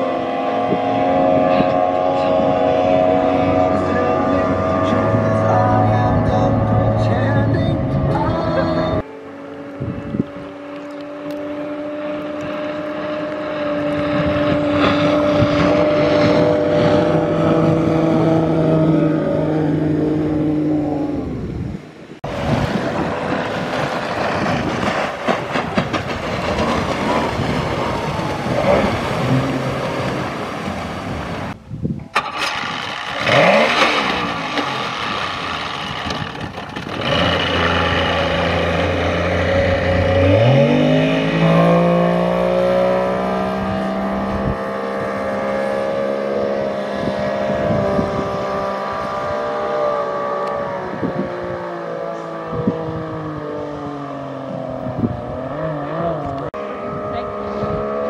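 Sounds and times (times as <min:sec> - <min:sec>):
outboard motor running and revving: 0:00.0 - 0:21.5, 0:22.2 - 0:31.6, 0:32.2 - 0:58.0.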